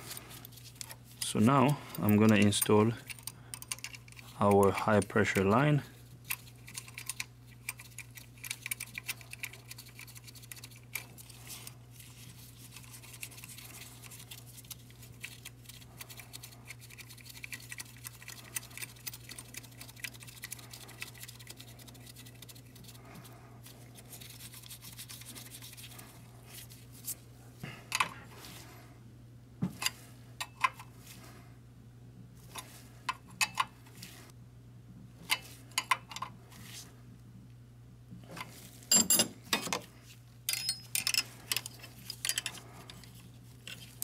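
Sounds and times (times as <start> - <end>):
small metallic clicks and scrapes: 0.0 - 5.6, 6.2 - 23.0, 40.5 - 44.0
low steady hum: 0.0 - 44.0.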